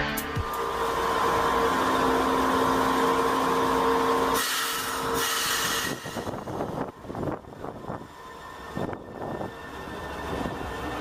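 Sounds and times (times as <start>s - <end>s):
electric train equipment hum: 0.0s - 11.0s
short bursts of hiss: 4.4s - 6.4s.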